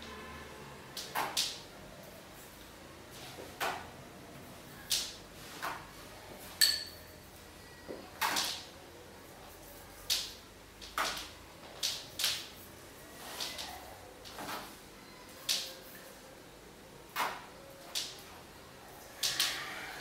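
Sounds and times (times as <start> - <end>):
light clink: 6.6 - 7.2.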